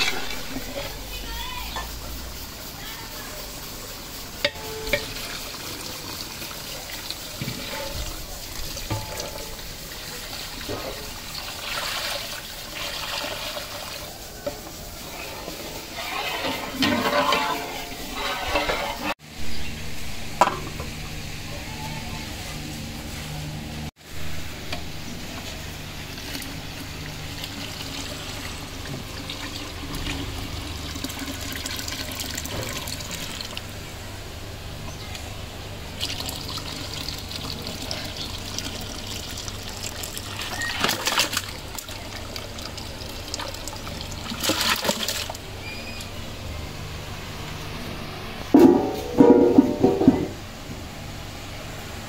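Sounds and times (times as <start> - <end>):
steady background hiss and hum: 0.0 - 52.0
liquid pouring and splashing: 4.8 - 14.3, 25.4 - 33.7, 36.0 - 45.5.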